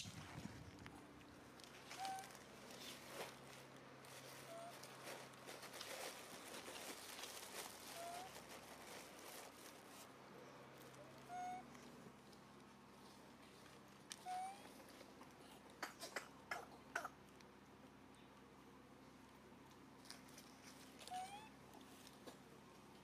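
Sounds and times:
animal squeaks: 0:01.9 - 0:02.4, 0:04.4 - 0:04.8, 0:08.0 - 0:08.4, 0:11.0 - 0:11.7, 0:14.2 - 0:14.8, 0:21.0 - 0:21.6.

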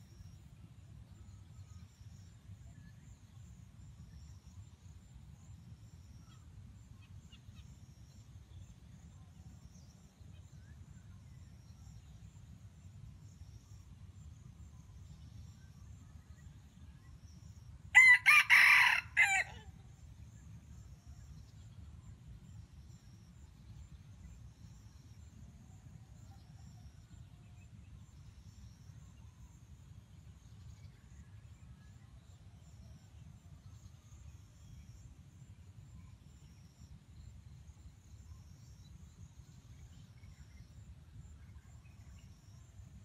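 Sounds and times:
faint low background noise: 0:00.0 - 0:43.0
rooster crowing: 0:17.9 - 0:19.7.

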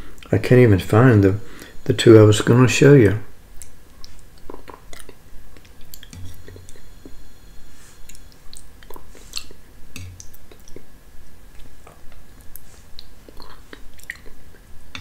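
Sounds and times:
wet mouth clicks and lip smacks: 0:03.6 - 0:06.5, 0:08.1 - 0:10.9, 0:11.6 - 0:14.6.

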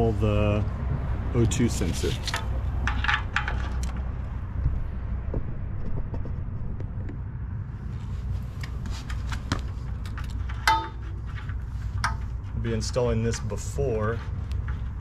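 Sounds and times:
steady low rumble: 0:00.0 - 0:15.0
faint clicks and rustles: 0:07.9 - 0:15.0.

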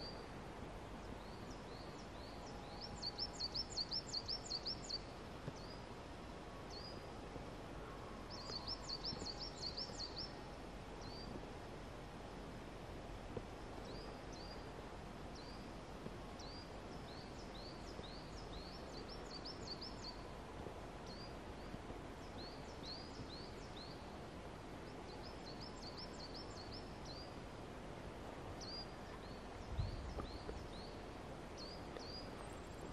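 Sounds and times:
steady background hiss: 0:00.0 - 0:32.9
small birds chirping: 0:01.0 - 0:05.9, 0:08.3 - 0:10.4, 0:16.4 - 0:20.3, 0:21.0 - 0:24.1, 0:28.5 - 0:32.9.

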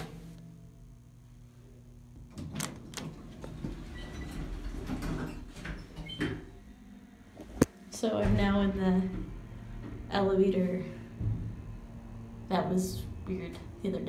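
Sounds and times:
elevator doors sliding: 0:02.3 - 0:06.6.

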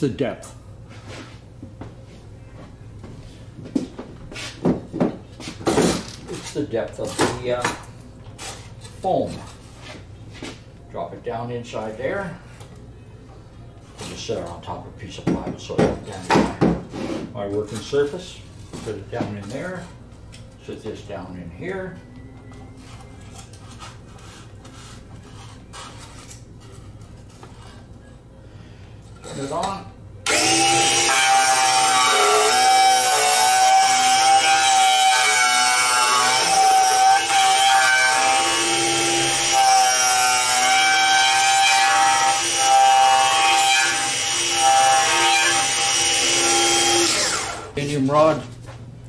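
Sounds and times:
rubbing and scraping on foam: 0:23.6 - 0:27.8
router motor whine: 0:30.3 - 0:35.3, 0:43.8 - 0:47.8
router bit cutting foam: 0:30.3 - 0:47.8.

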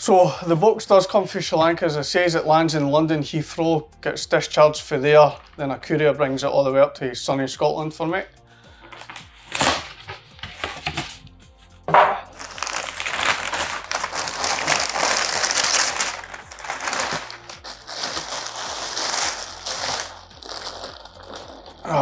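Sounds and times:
newspaper crinkling and rustling: 0:08.8 - 0:11.3, 0:11.9 - 0:22.0
polystyrene lid scraping: 0:11.9 - 0:22.0
plastic bag pulled open: 0:12.3 - 0:22.0.

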